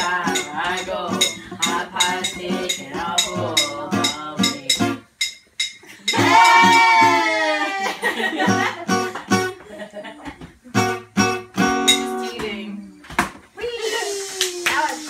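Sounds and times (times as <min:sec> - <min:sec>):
group singing: 0:00.0 - 0:05.0, 0:06.1 - 0:07.1
percussive clicking beat: 0:00.0 - 0:06.7
acoustic guitar: 0:00.0 - 0:15.0.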